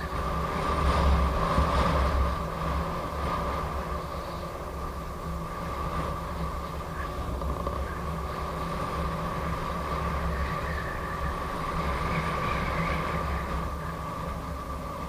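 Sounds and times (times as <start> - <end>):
steady high whine: 0.0 - 15.0
tyre and road noise: 0.0 - 15.0
wind rumbling on microphone: 0.0 - 15.0.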